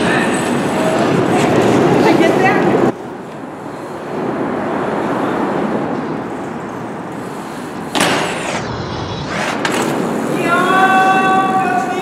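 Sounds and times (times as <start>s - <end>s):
subway train rumbling overhead: 0.0s - 12.0s.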